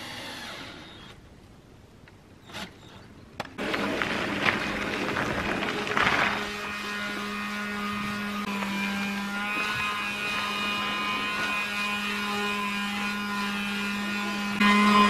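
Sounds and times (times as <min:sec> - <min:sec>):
electric sander humming: 0:06.2 - 0:15.0.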